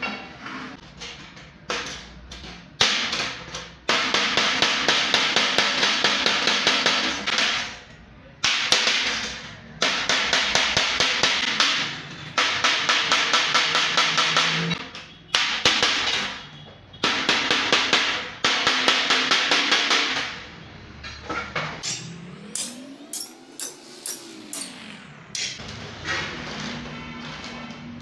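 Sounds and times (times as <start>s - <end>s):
hammer striking metal: 17.0s - 25.6s.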